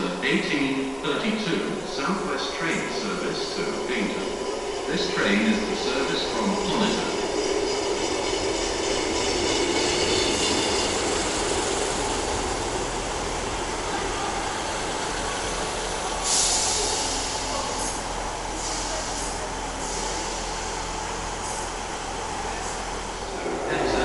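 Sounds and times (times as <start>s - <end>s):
diesel train rumbling: 0.0s - 24.0s.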